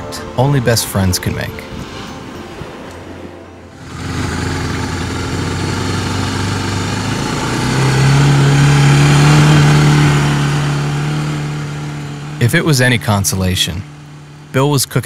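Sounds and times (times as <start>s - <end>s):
quad bike engine revving: 3.8s - 14.7s.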